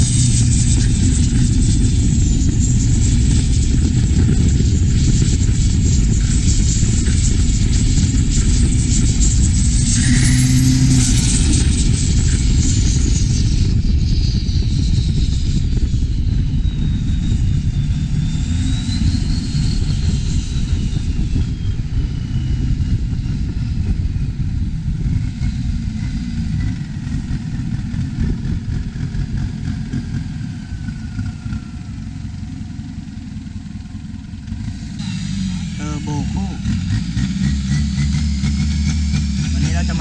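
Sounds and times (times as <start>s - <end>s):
turbo whistle: 9.5s - 12.0s
boat diesel engine running: 24.2s - 40.0s.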